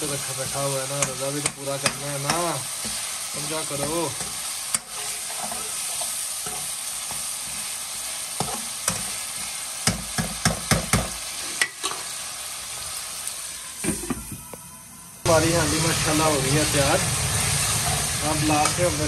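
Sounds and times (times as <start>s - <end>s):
curry sizzling in a pot: 0.0s - 19.0s.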